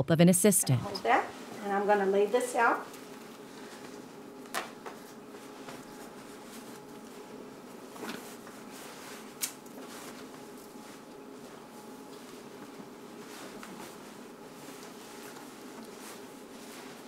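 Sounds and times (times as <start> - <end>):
faint room hum: 0.0 - 17.0
fabric rustling: 5.3 - 17.0.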